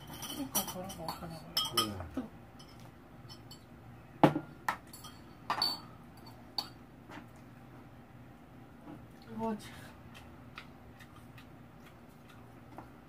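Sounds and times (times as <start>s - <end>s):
utensils clinking against bowl: 0.0s - 3.7s, 4.7s - 6.8s.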